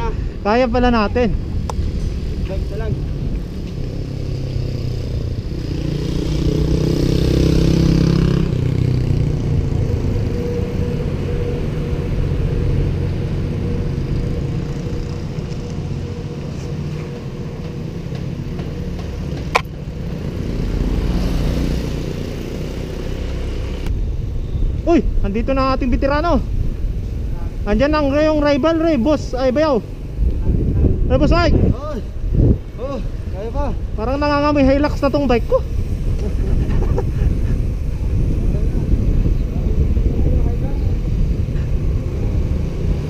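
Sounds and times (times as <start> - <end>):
motor vehicle passing: 0.0 - 43.0
road noise: 0.0 - 43.0
wind rumble: 0.0 - 43.0.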